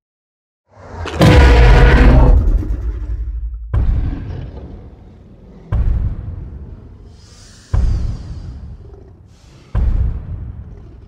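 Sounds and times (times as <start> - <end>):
deep boom impact: 1.2 - 4.6.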